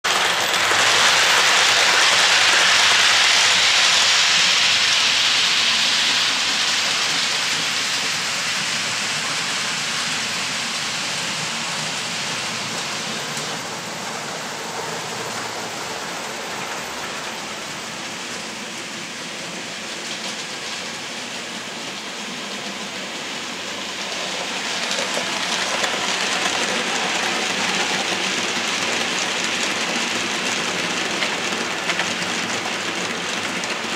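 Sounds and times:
model train wheels rattling on rails: 0.0s - 33.9s.

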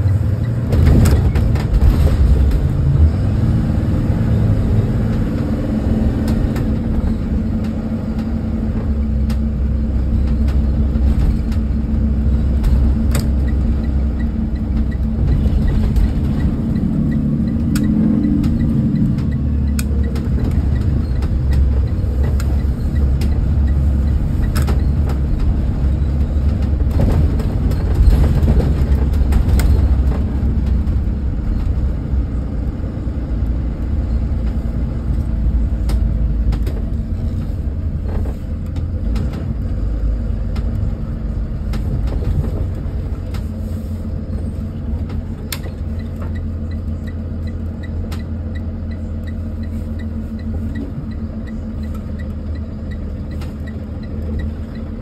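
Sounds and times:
bus diesel engine rumbling: 0.0s - 55.0s.

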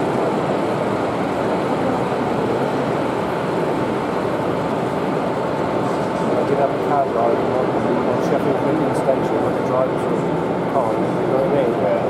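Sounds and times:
exhibition hall background noise: 0.0s - 12.0s
model train running: 0.0s - 12.0s.

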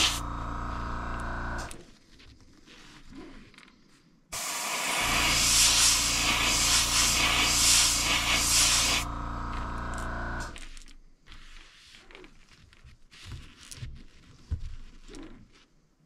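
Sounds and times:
airbrush spraying paint: 0.0s - 0.2s, 4.4s - 10.6s
low hum: 0.0s - 1.7s, 4.4s - 10.6s.

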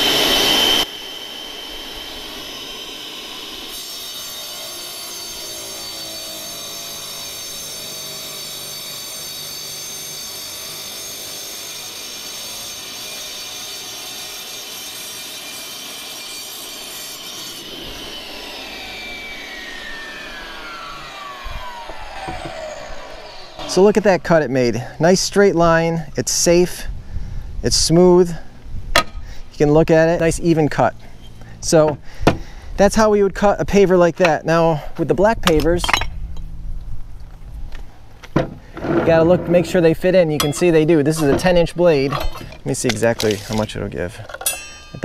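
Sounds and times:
saw motor winding down: 0.0s - 25.6s
wet tile saw cutting stone: 0.0s - 25.6s, 38.7s - 43.9s.

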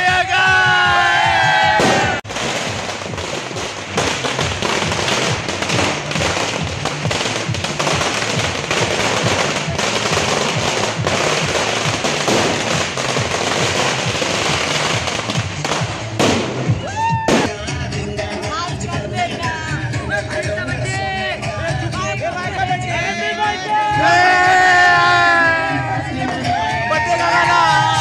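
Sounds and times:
people cheering and shouting: 0.0s - 2.2s, 9.3s - 10.3s, 16.6s - 17.6s, 19.5s - 28.0s
firecrackers banging: 1.8s - 17.6s.

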